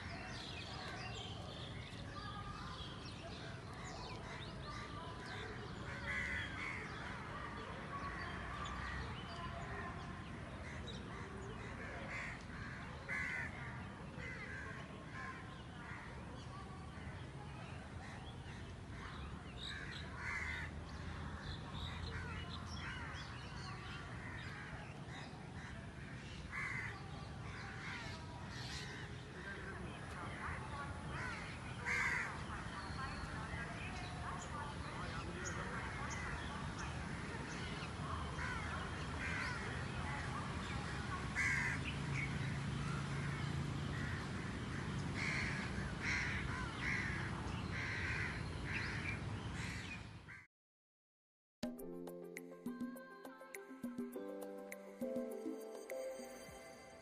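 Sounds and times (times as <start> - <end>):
crows cawing: 5.9 - 7.0, 12.1 - 15.3, 19.6 - 20.7, 26.5 - 27.0, 31.2 - 32.4, 38.4 - 39.7, 41.4 - 41.8, 43.9 - 50.4.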